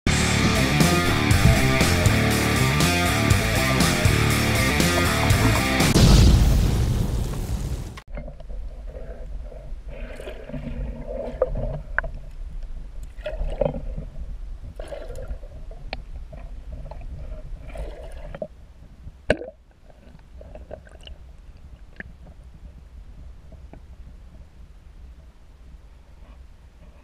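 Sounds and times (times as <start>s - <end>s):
low rumble: 0.1s - 8.0s
fish splashing: 9.9s - 12.0s, 14.7s - 15.6s, 17.0s - 18.4s
water gurgling underwater: 13.2s - 18.4s.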